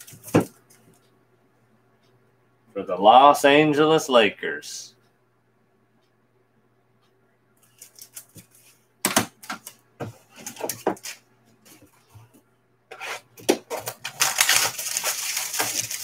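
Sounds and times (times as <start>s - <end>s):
plastic cases clicking and clacking: 9.1s - 11.2s, 13.4s - 16.0s
rustling: 12.9s - 16.0s.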